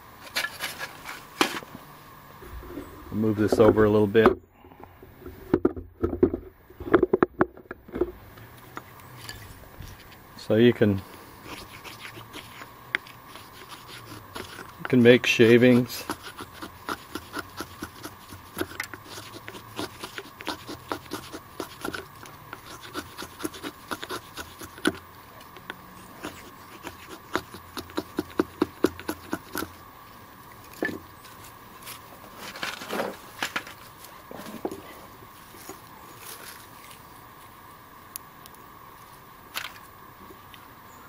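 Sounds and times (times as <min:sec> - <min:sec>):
knife shaving wood: 0:00.2 - 0:01.6, 0:11.4 - 0:29.8
handling sounds: 0:30.6 - 0:37.5.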